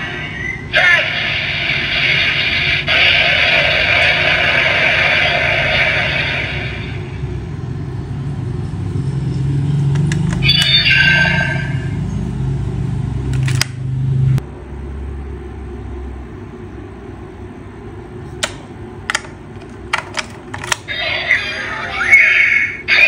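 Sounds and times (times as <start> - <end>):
toy electronic sound effect: 0.0 - 7.2, 10.4 - 12.0, 20.9 - 23.0
sharp plastic clicks: 13.3 - 13.8, 18.4 - 20.9.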